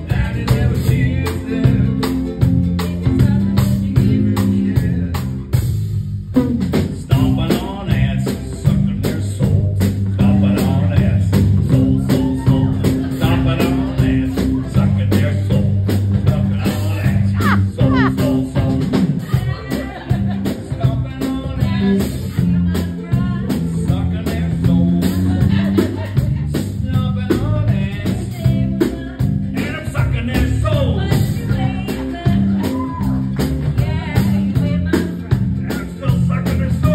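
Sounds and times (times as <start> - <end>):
strummed ukulele: 0.0 - 5.4
man singing into a microphone: 0.0 - 5.5, 6.8 - 32.8, 33.8 - 36.9
ukulele strumming: 0.0 - 5.5, 16.7 - 36.0.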